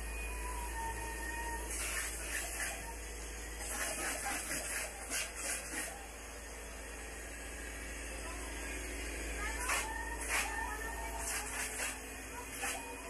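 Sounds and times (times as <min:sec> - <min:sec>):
spray-foam gun hissing: 0:01.7 - 0:02.8, 0:03.6 - 0:05.9, 0:09.6 - 0:12.8.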